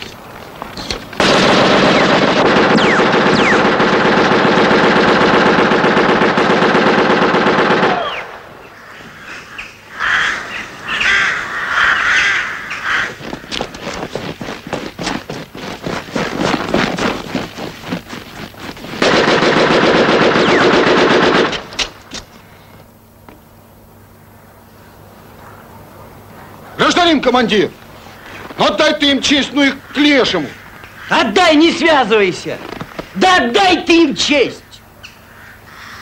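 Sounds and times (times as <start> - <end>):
sharp cracks: 0.9 - 8.6, 12.8 - 22.3
machine gun burst: 1.2 - 8.4, 19.0 - 21.8
birds chirping: 8.0 - 19.0, 24.0 - 33.2.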